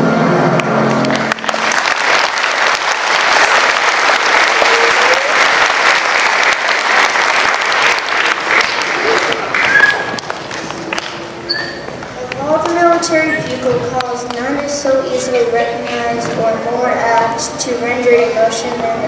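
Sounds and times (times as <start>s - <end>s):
audience applause: 0.6s - 11.2s.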